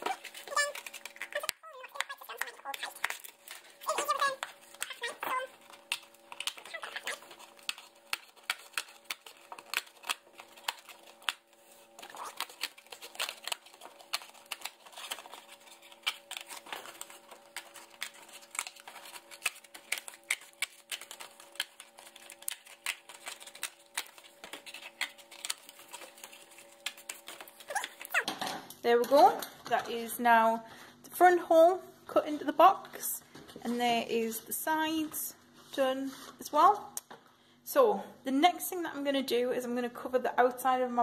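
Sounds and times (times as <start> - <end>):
scissors snipping cardboard: 5.8 - 11.4.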